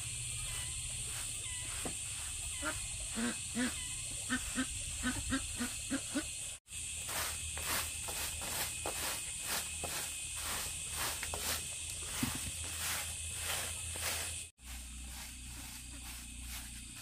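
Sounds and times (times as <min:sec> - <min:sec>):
broom scraping dirt path: 0:00.0 - 0:17.0
ducks quacking: 0:02.6 - 0:06.4.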